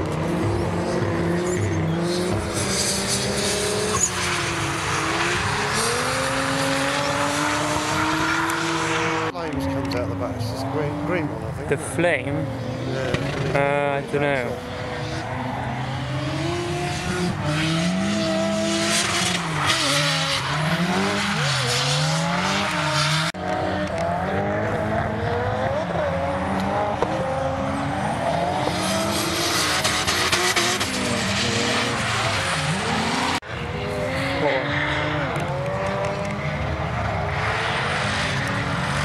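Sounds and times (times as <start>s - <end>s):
car engines revving hard: 0.0s - 39.0s
tyre squeal: 0.9s - 9.0s.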